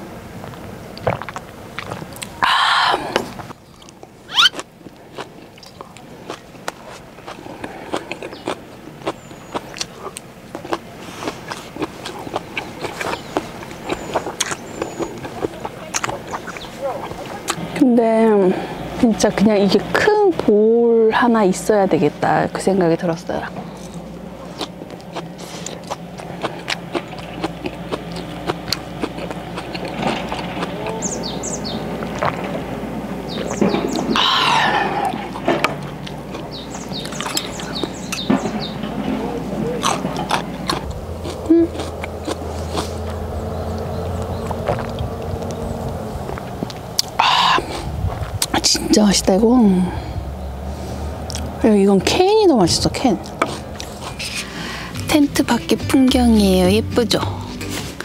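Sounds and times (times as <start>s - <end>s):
chewing crisp food: 0.4s - 2.4s, 3.0s - 17.7s, 23.6s - 32.7s, 33.3s - 38.7s, 39.6s - 48.6s, 51.2s - 51.6s, 52.8s - 55.8s
birds chirping: 2.4s - 20.2s, 21.2s - 57.7s
loud wavering call: 4.3s - 4.6s.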